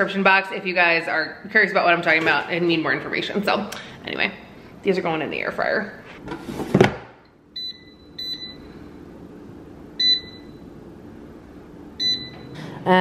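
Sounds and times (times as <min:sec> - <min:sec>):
low steady hum: 0:00.0 - 0:13.0
short electronic beeps: 0:10.0 - 0:10.6, 0:12.0 - 0:12.5.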